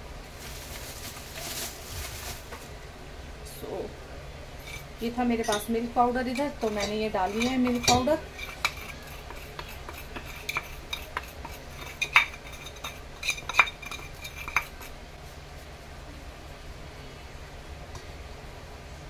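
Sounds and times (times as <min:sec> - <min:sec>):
steel bowl clinking on steel plate: 0:04.6 - 0:14.9.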